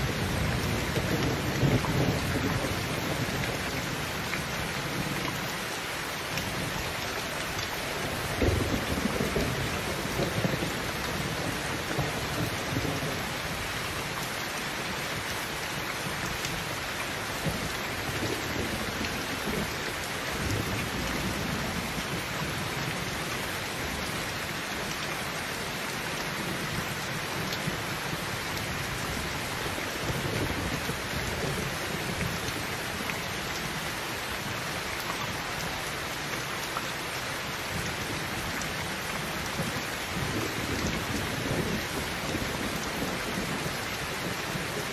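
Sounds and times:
rumbles of thunder: 0.0 - 3.8, 8.1 - 13.7, 39.5 - 44.7
heavy rain on a roof: 0.0 - 44.9.

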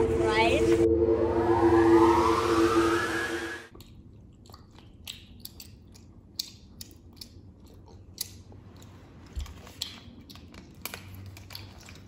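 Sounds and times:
children chewing candy: 3.7 - 12.0.

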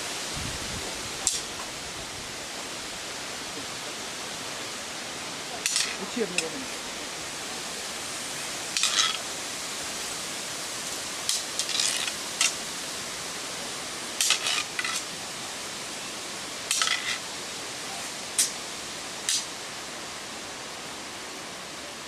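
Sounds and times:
steady hiss: 0.0 - 22.0
sword blades clashing: 8.8 - 9.2, 14.2 - 15.0.

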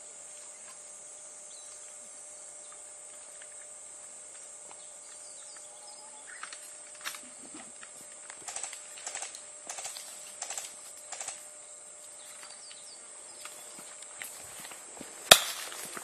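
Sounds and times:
footsteps crunching on dirt: 12.0 - 16.0
sharp crack: 15.3 - 15.8.

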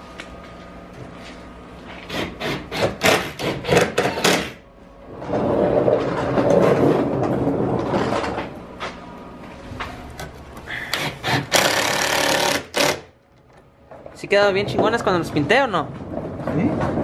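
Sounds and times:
hand tool scraping: 10.6 - 13.0.

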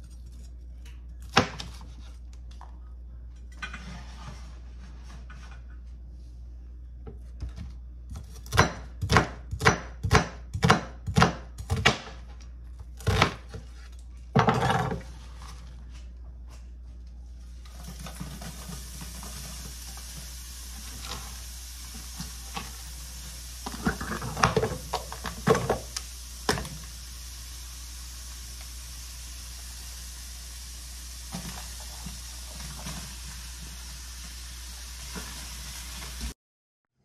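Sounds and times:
knife chopping on cutting board: 7.4 - 12.2, 13.0 - 13.6
frying pan sizzling: 17.5 - 36.4.

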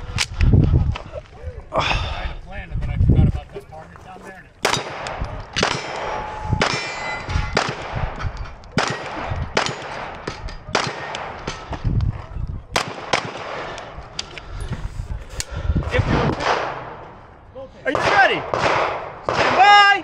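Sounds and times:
pistol shots: 4.6 - 11.7, 12.7 - 13.9, 17.9 - 19.7
steel targets clanging: 5.6 - 11.7.

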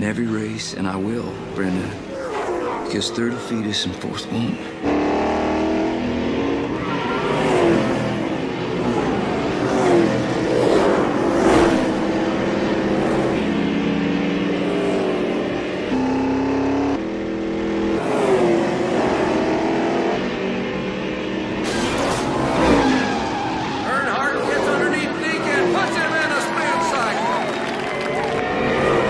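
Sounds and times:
cars passing by: 0.0 - 29.0
stock car engine revving: 0.9 - 29.0.

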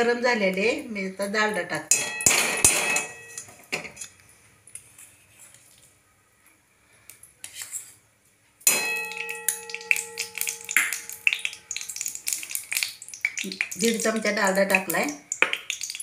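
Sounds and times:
metal spoon clinking on pan: 1.9 - 3.6, 8.7 - 13.9.

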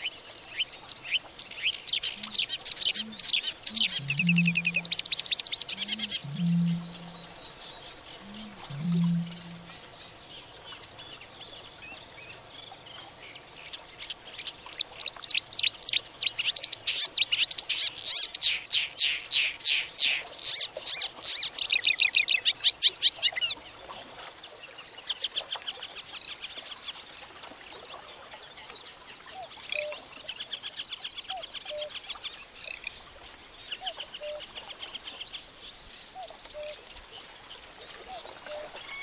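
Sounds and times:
quieter bird calls: 0.0 - 11.2
songbird trilling: 1.6 - 7.4, 8.2 - 9.9.

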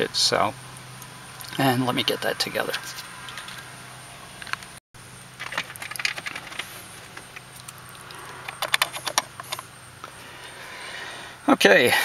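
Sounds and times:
connector clicks and rattles: 5.4 - 9.6.

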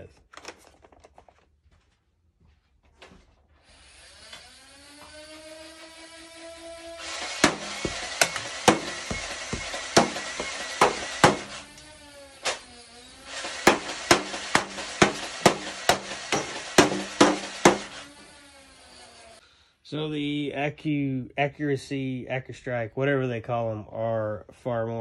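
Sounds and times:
toy blaster motor whirring: 3.6 - 19.4.

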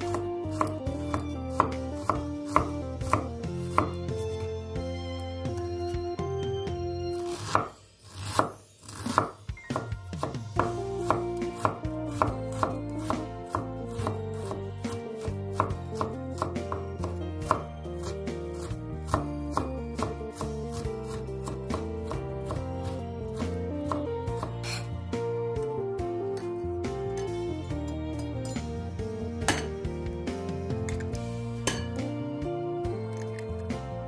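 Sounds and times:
knife chopping on wooden board: 0.0 - 4.4, 7.2 - 24.9, 29.4 - 29.8, 30.8 - 32.0
background music: 0.0 - 34.0.

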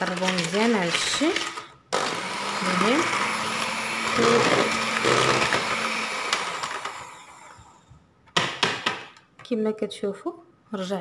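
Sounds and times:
electric hand mixer whirring: 0.2 - 8.0.

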